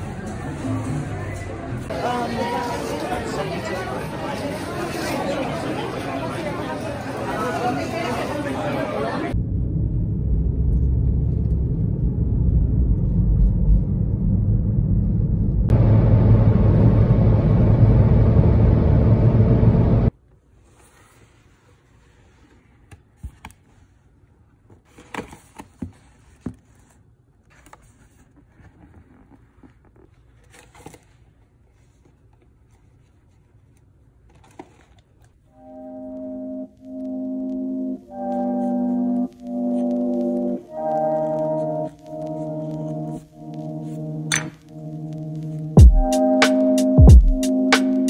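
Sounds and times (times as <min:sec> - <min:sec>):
road and engine rumble in car: 0:09.4 - 0:20.1
hands handling paperboard box: 0:24.7 - 0:35.3.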